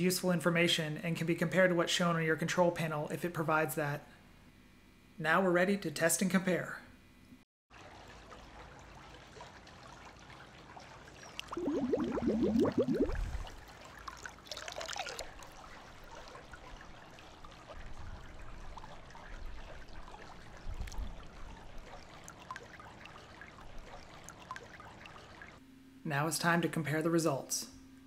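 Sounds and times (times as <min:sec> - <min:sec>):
bottle glugging underwater: 0:11.4 - 0:13.6
water splash: 0:11.4 - 0:15.8, 0:20.0 - 0:25.6.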